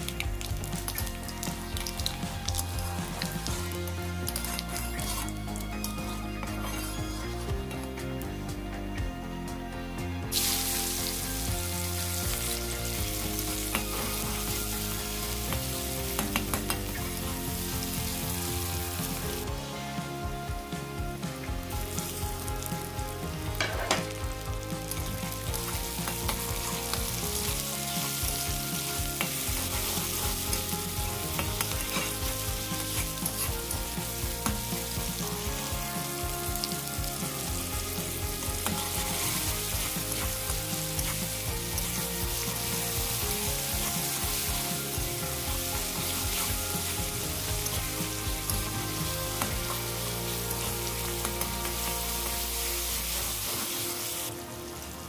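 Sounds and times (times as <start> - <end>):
vegetables sizzling in oil: 0.0 - 8.4, 10.3 - 55.0
metal spatula scraping pan: 23.6 - 24.1, 29.1 - 33.7.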